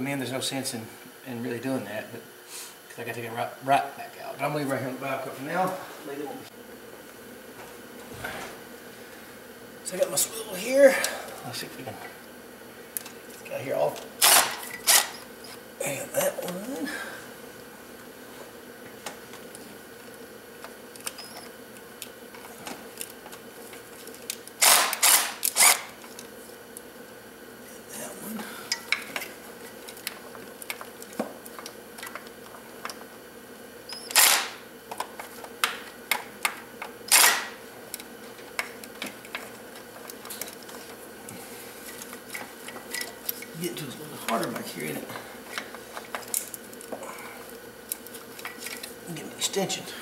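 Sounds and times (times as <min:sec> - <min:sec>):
faint steady hum: 0:00.0 - 0:50.0
ratchet clicking: 0:24.6 - 0:25.9.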